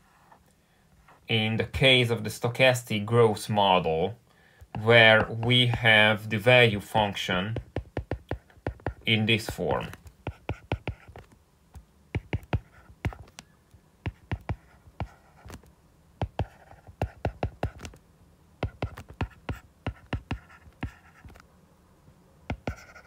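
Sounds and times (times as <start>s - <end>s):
stylus tapping on glass screen: 7.6s - 11.3s, 12.2s - 13.4s, 14.1s - 15.6s, 16.2s - 18.0s, 18.6s - 21.4s, 22.5s - 22.9s.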